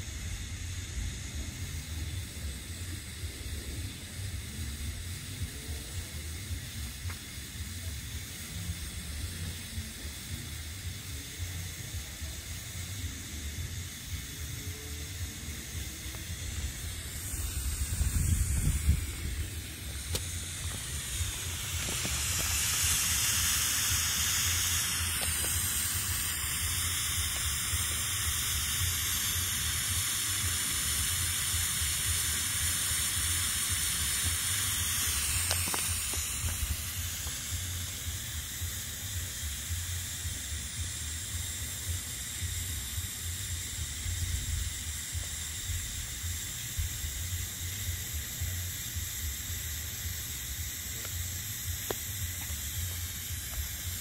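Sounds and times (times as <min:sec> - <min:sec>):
smoke bombs hissing: 0:00.0 - 0:54.0
low rumble: 0:15.2 - 0:29.0.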